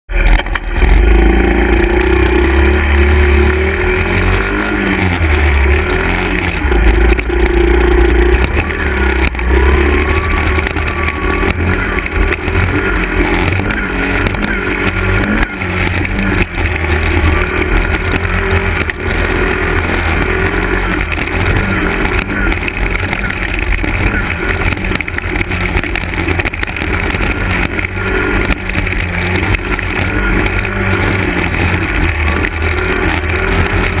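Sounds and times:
dirt bike engines revving: 0:00.1 - 0:34.0
heavy low engine rumble: 0:00.1 - 0:34.0.

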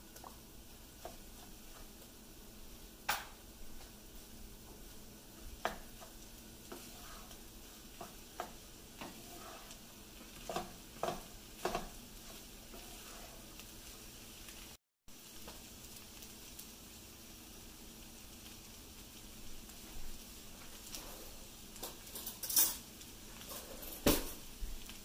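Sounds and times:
fried rice sizzling in a pan: 0:00.0 - 0:25.0
spatula scraping and knocking pan: 0:00.2 - 0:02.1, 0:04.6 - 0:13.6.

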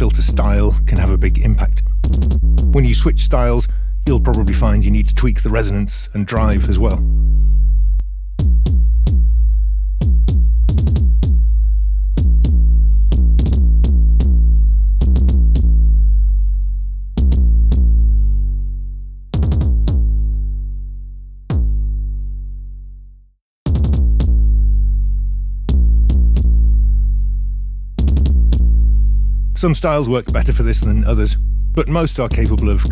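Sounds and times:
synthesized kick drum pattern: 0:00.0 - 0:05.4, 0:06.3 - 0:07.4, 0:08.4 - 0:16.0, 0:17.2 - 0:18.2, 0:19.4 - 0:20.4, 0:21.5 - 0:22.1, 0:23.7 - 0:24.7, 0:25.7 - 0:26.8, 0:28.0 - 0:29.0, 0:29.6 - 0:32.9.

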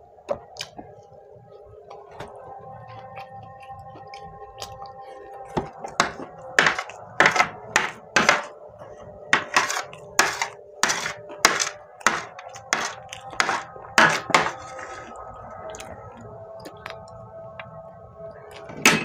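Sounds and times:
metal spoon scraping a tray: 0:06.0 - 0:08.5, 0:09.3 - 0:15.2.

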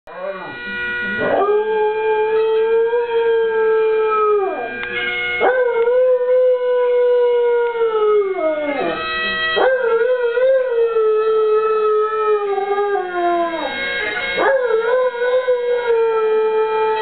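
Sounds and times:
bagpipes drone: 0:00.1 - 0:17.0
dog howling: 0:05.4 - 0:09.0, 0:09.6 - 0:17.0.

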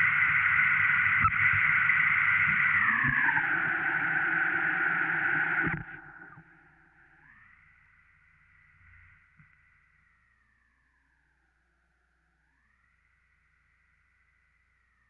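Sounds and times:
buzzy electronic tone sliding down: 0:00.0 - 0:06.8
faint warbling tone: 0:02.2 - 0:07.6.

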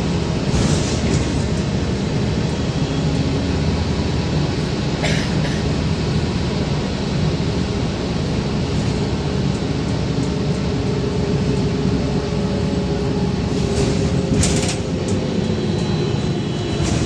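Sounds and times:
tyres and body rumbling: 0:00.0 - 0:17.0.

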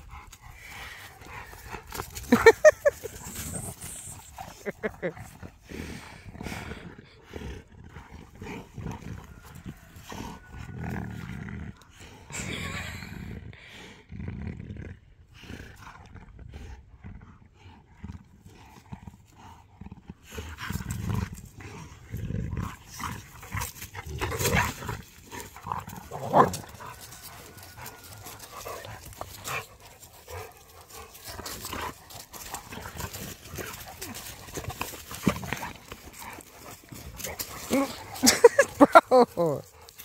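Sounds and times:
dogs growling in play: 0:00.0 - 0:40.0.

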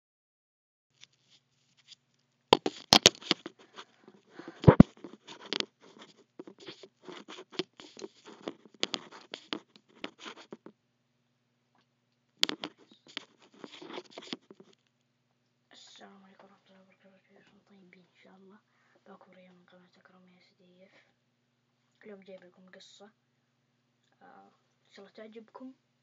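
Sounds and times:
microphone handling noise: 0:02.6 - 0:10.7, 0:12.4 - 0:14.7.

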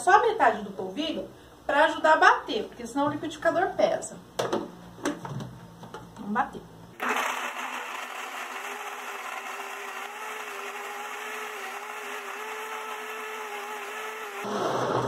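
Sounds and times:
blender running: 0:07.0 - 0:15.0.

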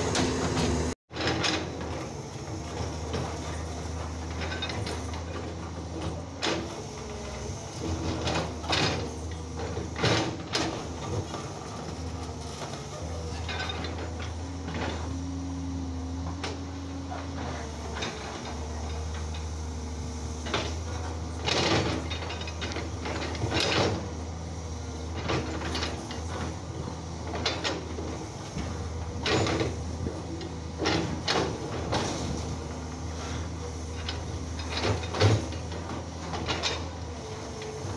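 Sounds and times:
diesel engine humming: 0:00.0 - 0:01.0.

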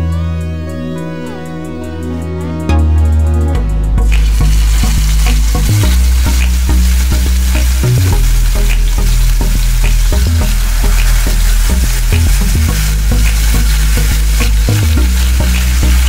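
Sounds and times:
low hum: 0:00.0 - 0:16.0
fish sizzling in hot oil: 0:04.1 - 0:16.0.

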